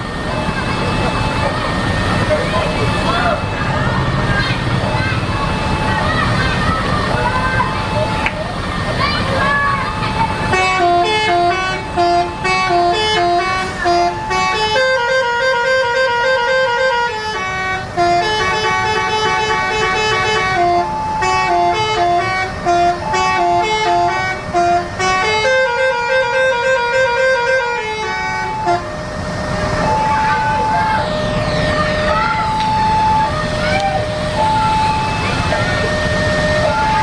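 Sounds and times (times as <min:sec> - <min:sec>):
bus musical horn playing tune: 0:10.3 - 0:29.1.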